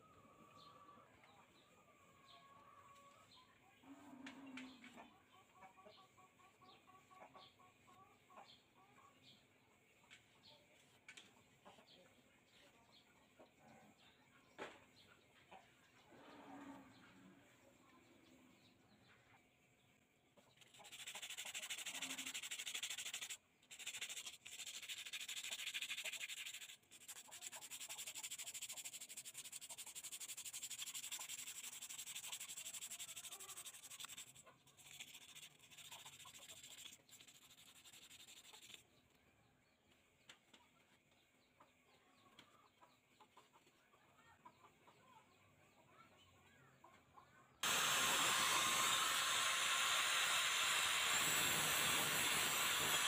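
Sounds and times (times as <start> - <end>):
sandpaper rasping on steel blade: 20.6 - 38.8, 47.6 - 53.0
angle grinder sanding: 20.7 - 38.8, 47.6 - 53.0.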